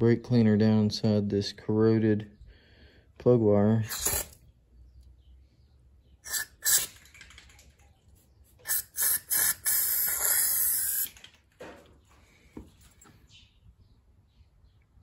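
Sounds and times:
aerosol can spraying: 3.9s - 4.3s, 6.3s - 7.0s, 8.6s - 11.2s.

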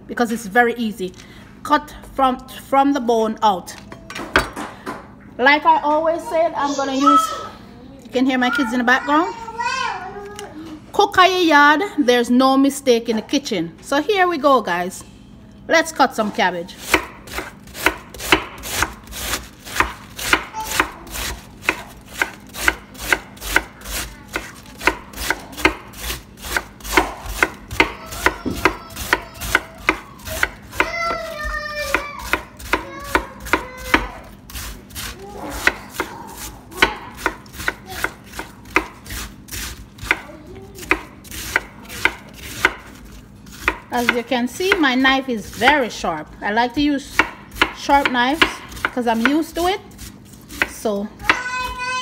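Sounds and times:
knife slicing cabbage: 16.8s - 46.0s, 47.0s - 52.0s.

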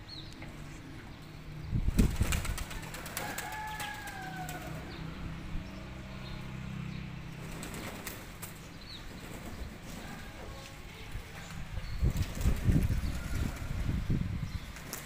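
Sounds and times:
pigeon wings flapping: 1.9s - 4.7s, 7.4s - 10.3s, 12.1s - 13.7s, 14.8s - 15.0s.

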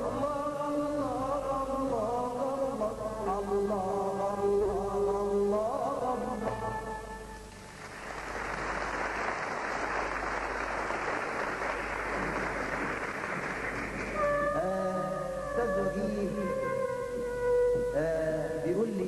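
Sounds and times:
audience applause: 7.7s - 14.2s.

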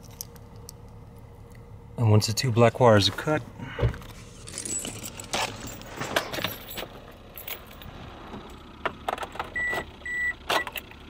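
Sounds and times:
keys jangling: 4.4s - 7.9s
car dashboard warning beeps: 9.6s - 10.8s.

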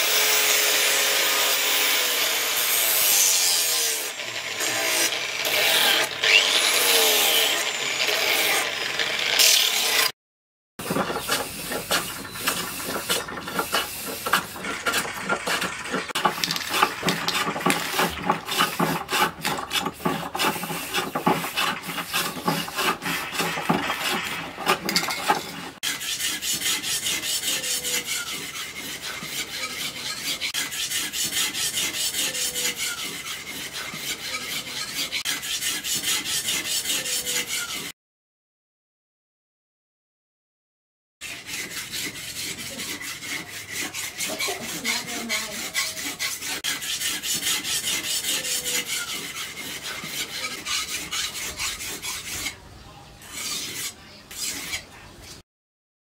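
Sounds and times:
metal scraping and clicking: 10.8s - 25.8s
knife on sharpening stone: 41.2s - 52.6s, 53.2s - 54.9s.

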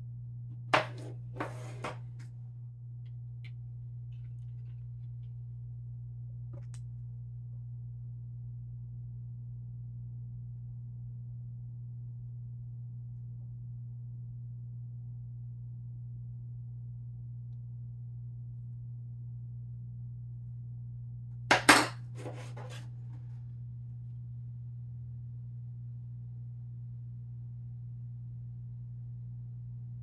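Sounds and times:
steady low hum: 0.0s - 30.0s
sunglasses set down on table: 0.8s - 2.0s.

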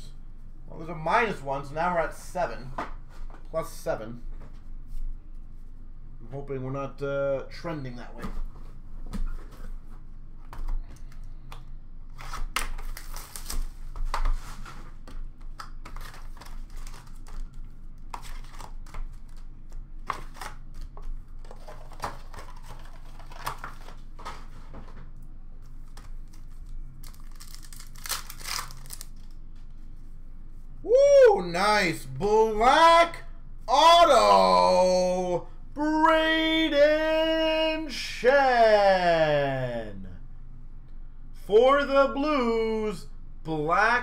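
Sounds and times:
wrappers crinkling and tearing: 12.3s - 14.0s, 16.0s - 24.5s, 25.9s - 29.4s.

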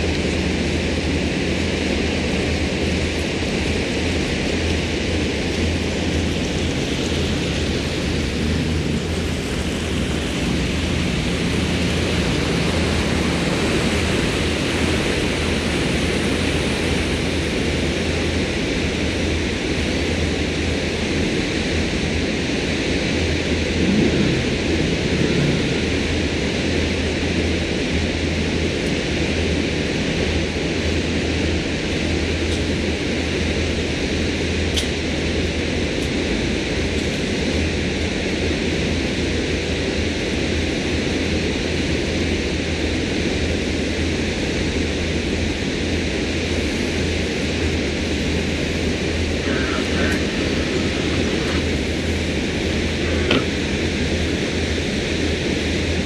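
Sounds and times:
boat engine droning: 0.0s - 56.0s
wind and water rushing: 5.1s - 20.0s, 22.8s - 27.5s.

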